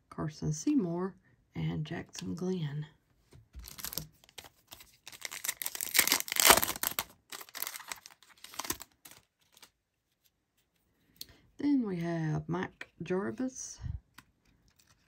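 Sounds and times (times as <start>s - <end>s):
foil wrapper tearing and crinkling: 3.6s - 9.7s.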